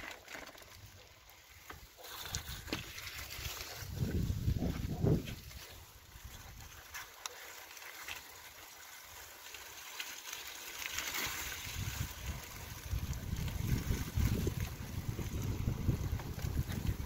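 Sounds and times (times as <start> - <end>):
bicycle tyres rolling through slush: 0.0 - 17.0
wind rumble on microphone: 3.7 - 6.7, 11.6 - 17.0.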